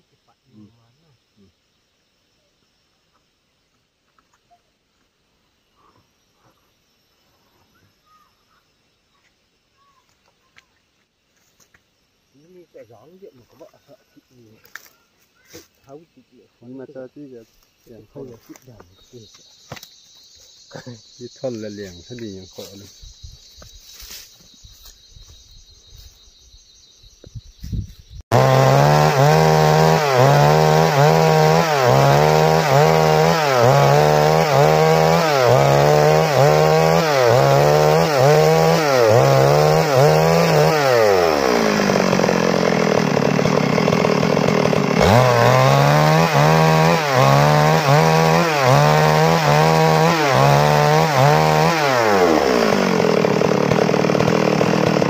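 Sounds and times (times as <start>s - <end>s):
chainsaw ripping log: 28.3s - 55.0s.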